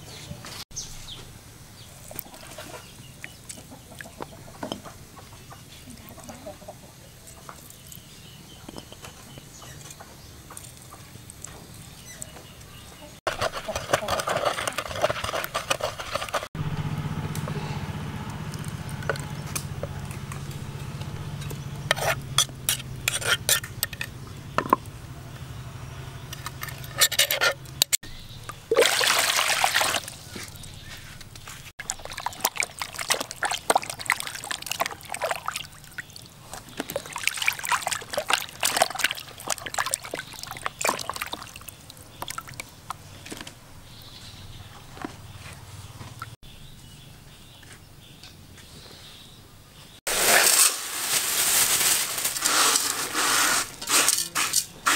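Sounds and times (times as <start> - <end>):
small splashes and knocks: 28.4 - 30.8, 31.8 - 43.5
water pouring into plastic basin: 28.7 - 30.2, 31.8 - 36.2, 36.8 - 42.6.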